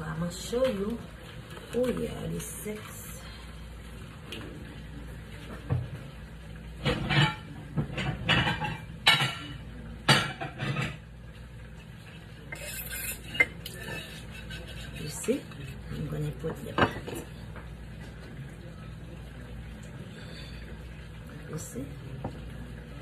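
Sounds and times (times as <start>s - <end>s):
dishes and utensils clattering: 6.8s - 11.1s, 12.4s - 17.6s.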